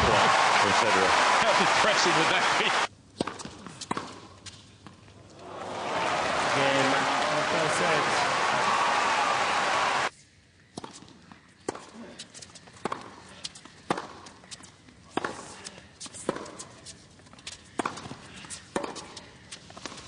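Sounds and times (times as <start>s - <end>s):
hushed crowd: 5.4s - 10.1s.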